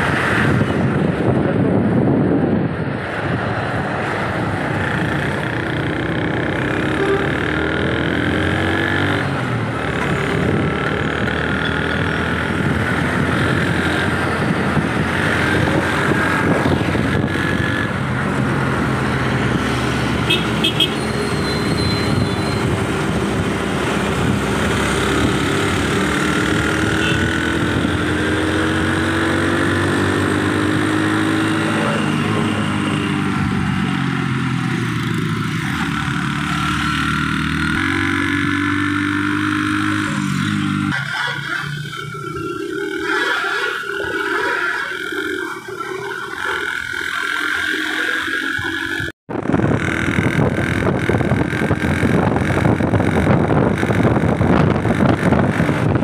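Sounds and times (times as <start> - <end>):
road noise: 0.0 - 56.0
vehicle engines running: 0.0 - 56.0
car horn toot: 6.9 - 7.4, 20.2 - 22.6, 26.9 - 27.4.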